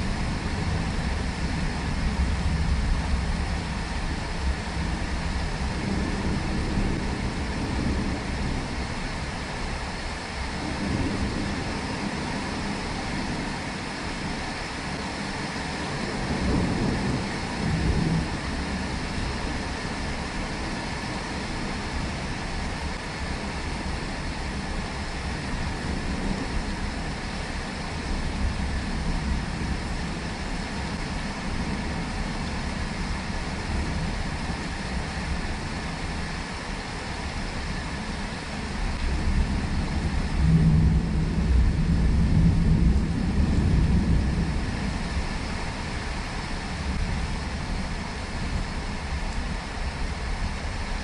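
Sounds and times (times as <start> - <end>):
steady rain falling: 0.0 - 51.0
deep rumble: 15.6 - 51.0.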